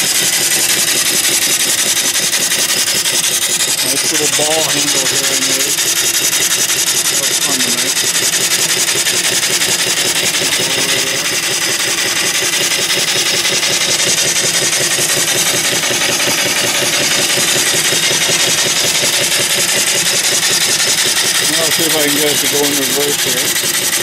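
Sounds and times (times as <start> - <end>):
steam engine exhaust chuffs: 0.0 - 24.0.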